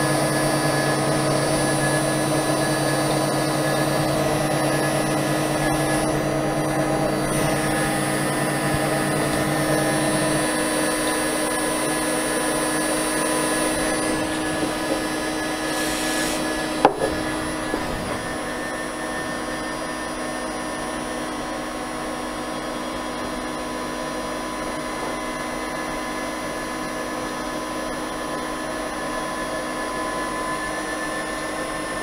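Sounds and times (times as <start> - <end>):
low hum: 0.0 - 20.2
metal cutting noise: 0.0 - 23.4
router spindle whine: 0.0 - 32.0.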